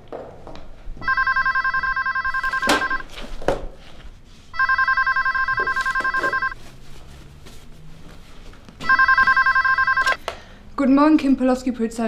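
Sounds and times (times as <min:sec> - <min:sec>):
telephone ringing with warbling trill: 0:01.0 - 0:03.1, 0:04.6 - 0:06.6, 0:08.8 - 0:10.2.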